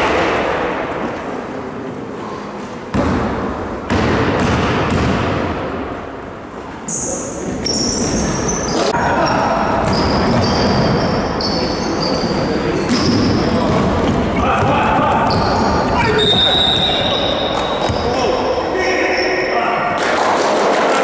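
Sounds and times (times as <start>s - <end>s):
basketball bouncing: 2.9s - 5.6s
sneakers squeaking on floor: 6.9s - 19.5s
players' voices: 6.9s - 21.0s.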